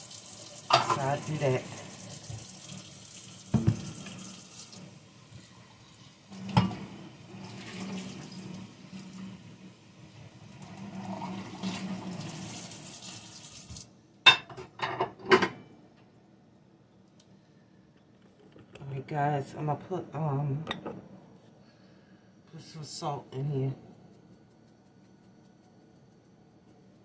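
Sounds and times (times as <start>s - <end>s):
tap running into a metal sink: 3.5s - 4.3s.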